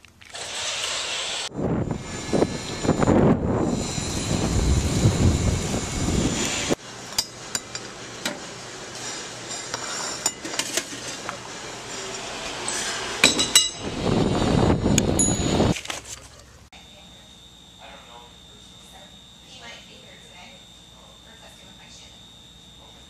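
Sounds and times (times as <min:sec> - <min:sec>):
wind rumbling on microphone: 0:01.5 - 0:06.8, 0:13.8 - 0:15.8.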